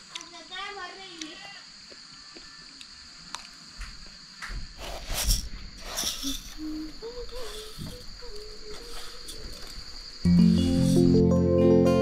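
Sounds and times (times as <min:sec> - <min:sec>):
insects trilling: 0:00.0 - 0:12.0
low wavering tone: 0:10.3 - 0:12.0.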